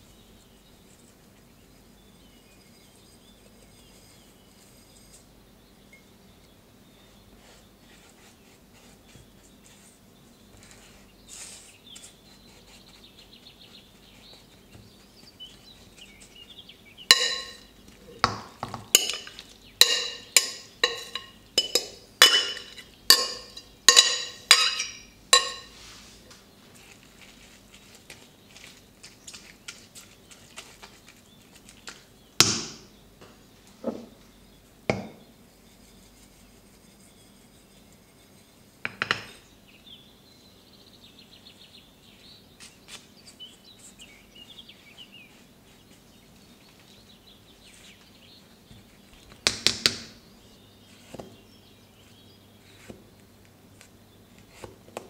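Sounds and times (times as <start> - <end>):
dishware clinking: 17.1 - 25.8.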